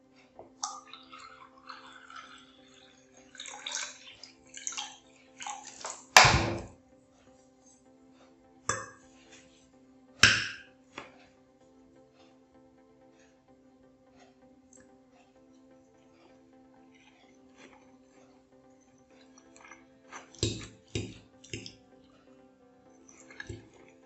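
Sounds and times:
faint background music: 0.0 - 24.0
water poured into a glass: 0.6 - 6.2.

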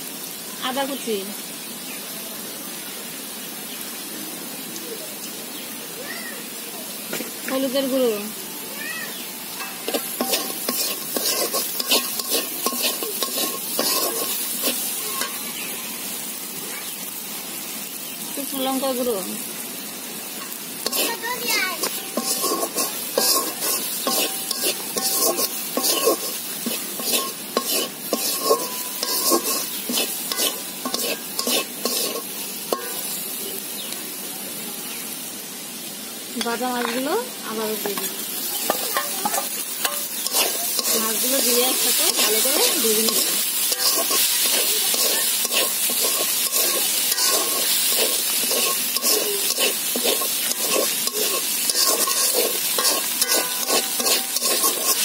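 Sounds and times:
onions sizzling in oil: 0.0 - 55.0
metal spatula scraping wok: 9.5 - 15.7, 20.3 - 33.3, 37.6 - 55.0.

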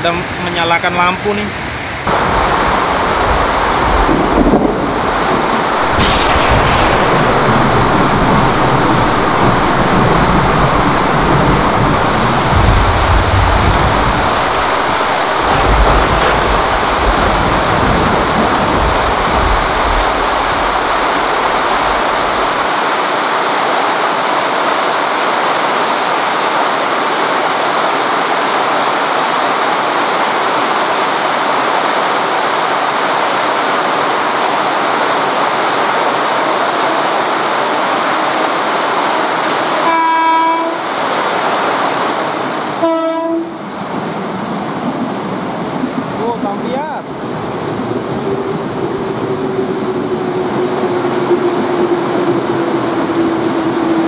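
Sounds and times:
torrential rain pouring: 0.0 - 54.0
low rumble: 2.1 - 22.5.

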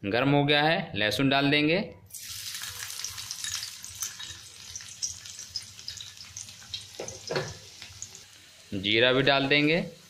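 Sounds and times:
garlic sizzling in hot oil: 2.1 - 10.0.

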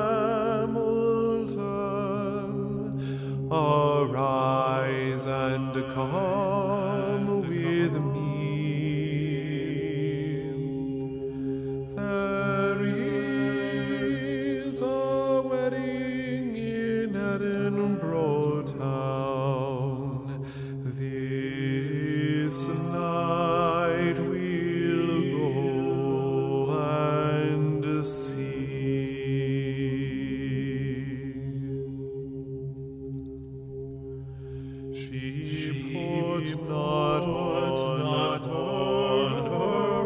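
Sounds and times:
steady low drone: 0.0 - 40.0
voices chanting held notes: 35.0 - 40.0.

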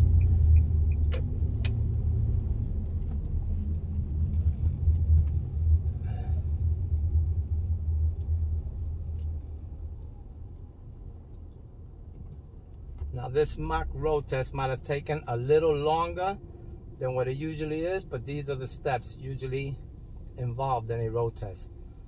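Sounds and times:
car engine and tyres rumbling: 0.0 - 22.0.

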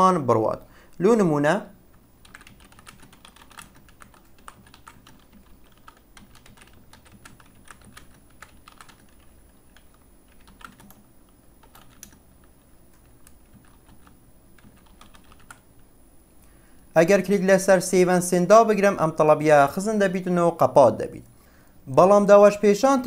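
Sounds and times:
typing on a computer keyboard: 2.2 - 15.8.

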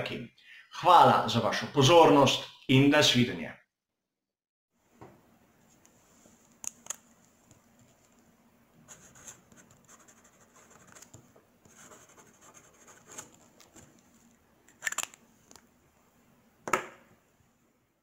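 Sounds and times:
pen nib scratching on paper: 8.9 - 13.9.

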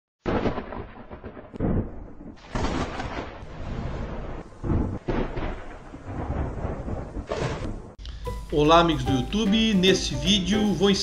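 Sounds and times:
crashing rumbling thunder: 0.3 - 8.0.

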